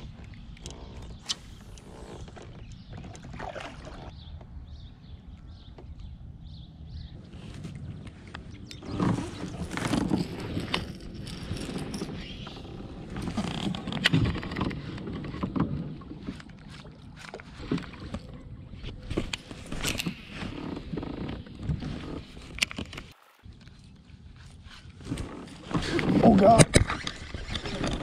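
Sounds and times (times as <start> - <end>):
gear knocks and clicks: 8.3 - 18.2.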